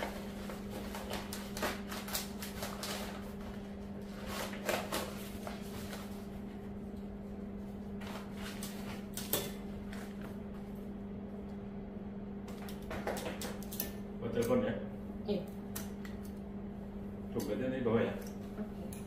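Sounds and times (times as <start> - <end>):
wrapping paper rustling: 0.0 - 6.3, 7.9 - 10.3.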